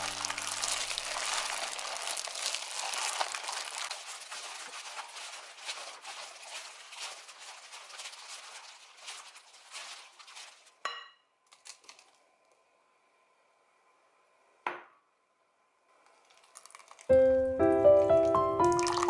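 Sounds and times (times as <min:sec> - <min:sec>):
liquid trickling: 0:00.0 - 0:10.7, 0:16.0 - 0:19.0
strawberries squelching: 0:00.0 - 0:10.8, 0:16.2 - 0:19.0.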